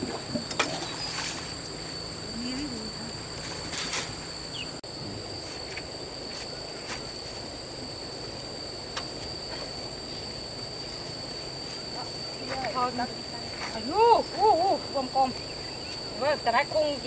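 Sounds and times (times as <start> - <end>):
cricket drone: 0.0 - 17.0
outdoor background noise: 0.0 - 17.0.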